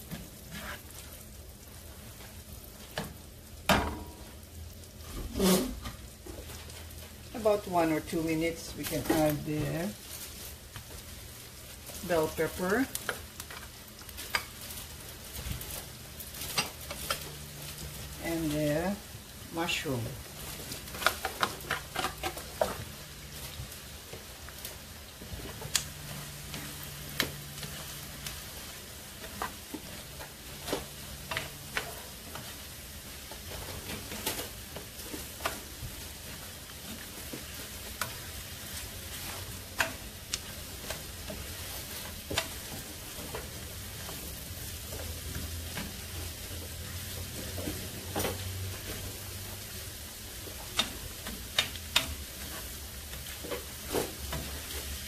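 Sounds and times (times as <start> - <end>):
vegetables sizzling in butter: 0.0 - 55.0
spoon knocking and scraping pan: 12.3 - 17.9, 20.6 - 24.3, 25.3 - 49.1.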